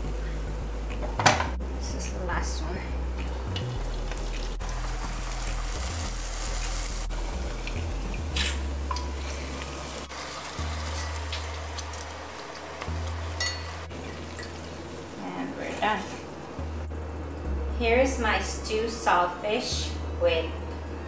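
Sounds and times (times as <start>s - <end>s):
dough sizzling in hot oil: 3.2s - 16.0s
utensils knocking against pot: 13.4s - 13.8s.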